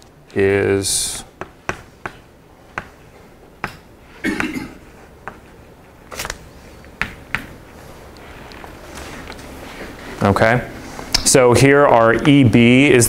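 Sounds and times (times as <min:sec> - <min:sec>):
chalk tapping on blackboard: 0:01.4 - 0:03.0, 0:05.2 - 0:05.5, 0:07.0 - 0:07.6.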